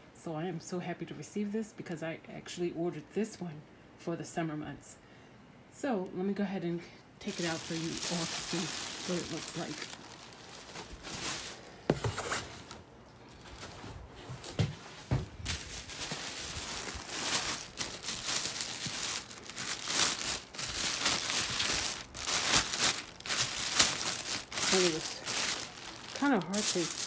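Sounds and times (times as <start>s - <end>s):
plastic wrapping crinkling: 7.2s - 27.0s.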